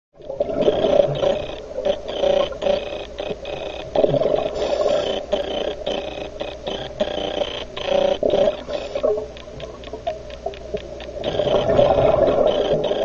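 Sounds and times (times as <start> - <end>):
diver breathing through regulator: 3.9 - 6.1, 6.8 - 9.2.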